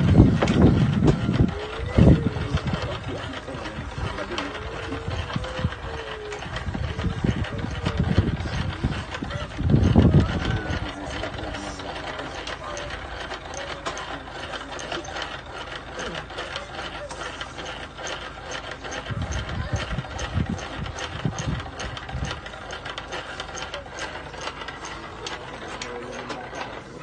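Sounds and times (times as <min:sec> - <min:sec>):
low thumps: 0:00.0 - 0:03.1
mechanism clicking rapidly: 0:00.0 - 0:27.0.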